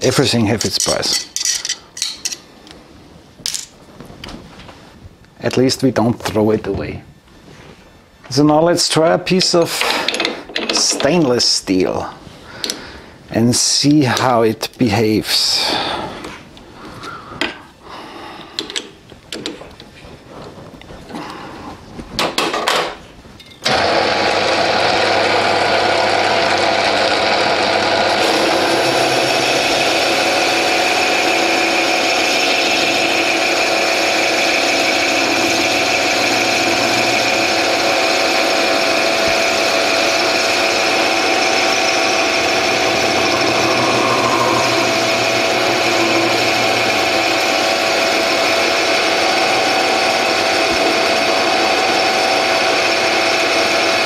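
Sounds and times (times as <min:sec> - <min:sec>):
lathe spindle drive running: 0:23.7 - 0:54.0.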